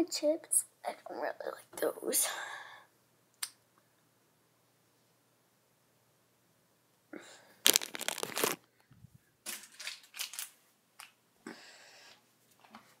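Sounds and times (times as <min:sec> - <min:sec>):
snack packaging crinkling: 0:07.6 - 0:08.7, 0:09.5 - 0:11.1.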